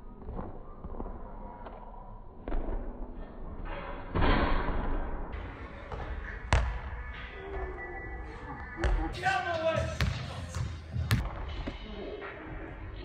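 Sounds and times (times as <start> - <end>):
basketball rim slam and rattle: 4.1 - 5.1.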